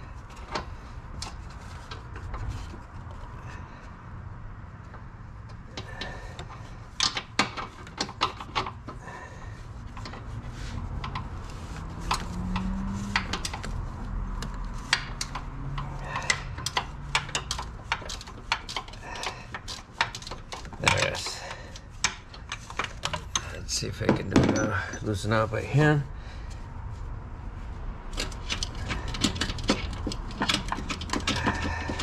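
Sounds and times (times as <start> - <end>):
wrench clicking on metal: 14.9 - 23.6.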